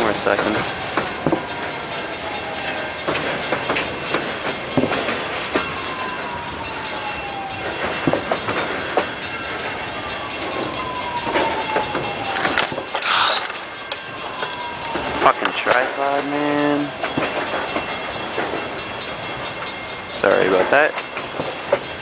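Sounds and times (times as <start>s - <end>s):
long whining tones: 0.0s - 20.4s
train wheels clicking over rail joints: 0.0s - 22.0s.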